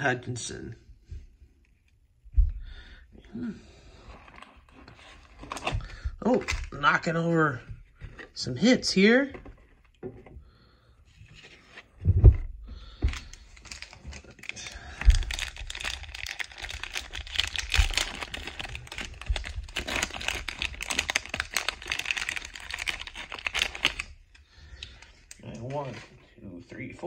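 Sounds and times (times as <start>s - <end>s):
plastic wrapper crinkling: 13.1s - 26.1s.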